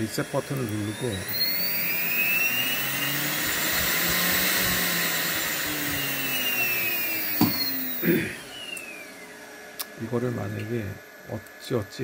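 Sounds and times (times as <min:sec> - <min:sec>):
spindle motor whining: 0:00.0 - 0:12.0.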